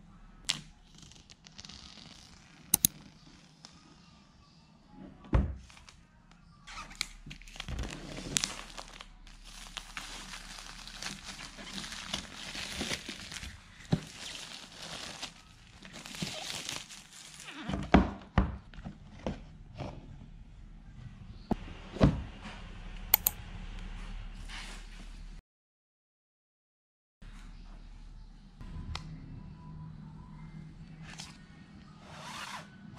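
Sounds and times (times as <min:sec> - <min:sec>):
plastic wrap crinkling: 0:06.9 - 0:17.5.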